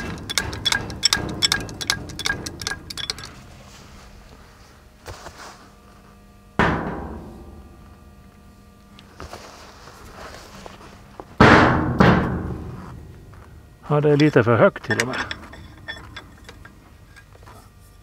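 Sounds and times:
loud clang of steel bucket: 0.0 - 3.4, 6.6 - 7.7
light clinks of steel on steel: 14.2 - 17.3.

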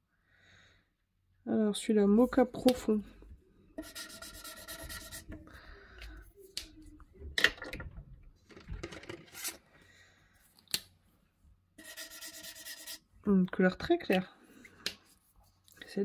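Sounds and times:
marker scribbling on paper: 3.8 - 5.4, 11.8 - 13.1.

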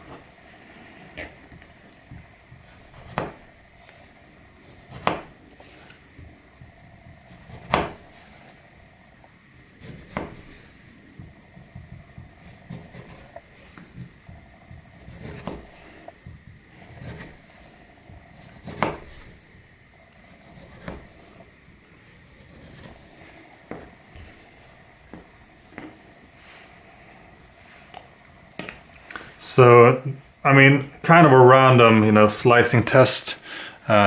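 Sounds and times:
faint rubbing and cutting: 2.5 - 8.8, 9.5 - 19.6, 20.2 - 28.1
knife knocking on cutting board: 7.6 - 8.0.

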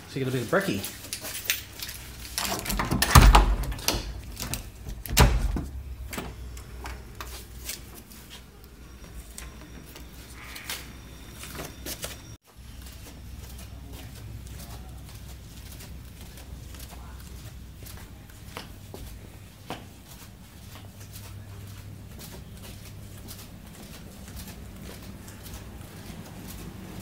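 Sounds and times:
door thumps: 2.6 - 6.3.

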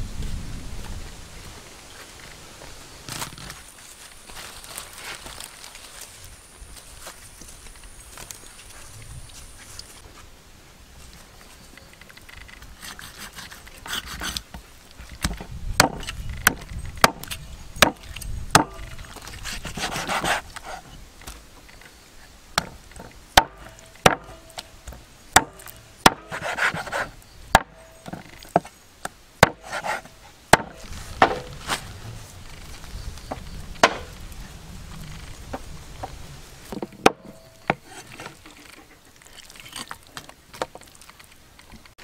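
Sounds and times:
rubbing and scraping: 12.4 - 21.0, 25.6 - 28.8, 29.4 - 34.3, 34.9 - 40.0
blade chopping on wood: 15.2 - 20.4, 22.6 - 28.7, 29.4 - 31.7, 33.8 - 34.2, 36.7 - 38.1.

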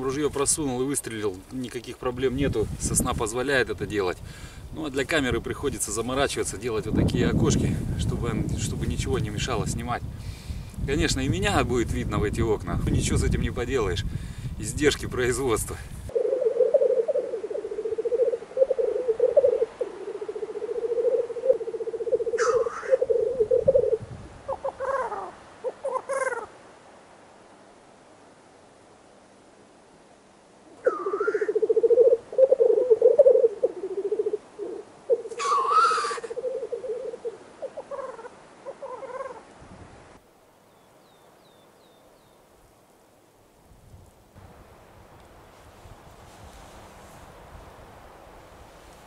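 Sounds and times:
grouse bubbling cooing song: 16.1 - 26.5, 30.8 - 39.4
grouse hissing call: 16.1 - 26.5, 30.8 - 39.4
grouse hissing sneeze-call: 35.4 - 36.4.

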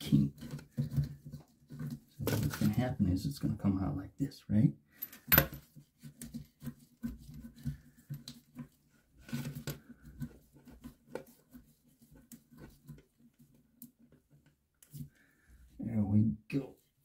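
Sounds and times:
hose handling clicks and rustles: 5.1 - 15.1.

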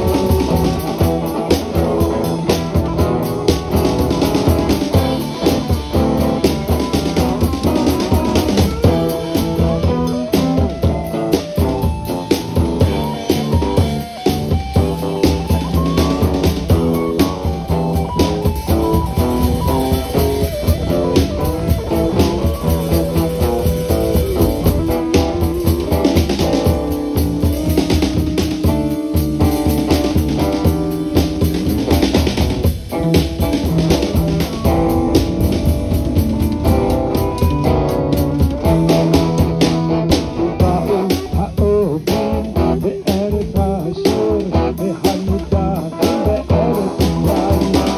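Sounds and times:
drum kit steady beat: 0.0 - 47.9
rock band playing live: 0.0 - 47.9.

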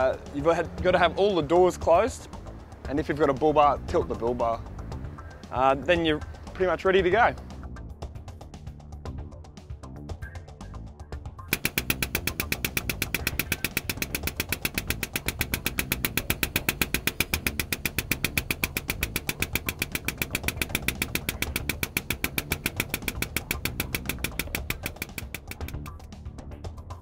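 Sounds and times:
hydraulic pump pulsing: 11.5 - 25.9.

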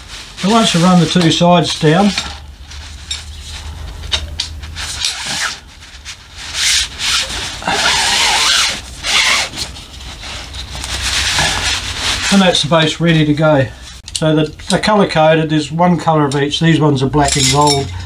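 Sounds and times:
poles scraping through fabric sleeves: 0.0 - 12.8.

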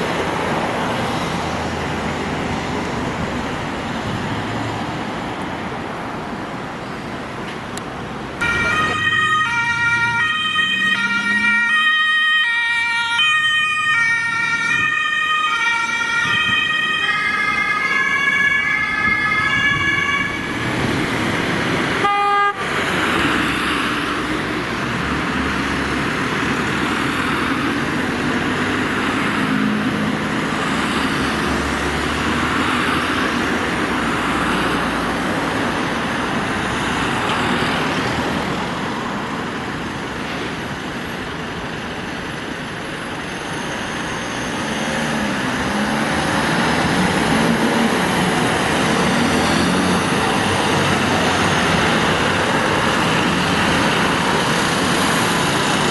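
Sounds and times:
fire engines driving past: 0.0 - 55.9
two-tone ambulance siren: 8.4 - 20.9.

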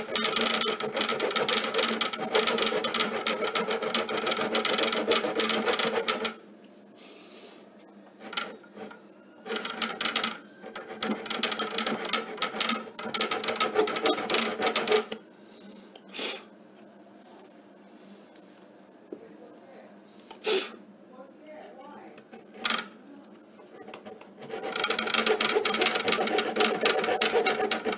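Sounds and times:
hacksaw cutting metal: 0.0 - 6.4, 9.5 - 15.2, 23.8 - 27.9.

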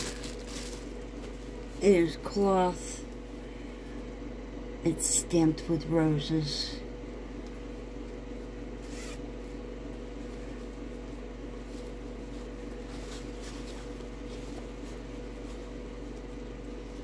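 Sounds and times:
low electrical hum: 0.0 - 17.0
zipper pouch rustling: 8.8 - 9.2.

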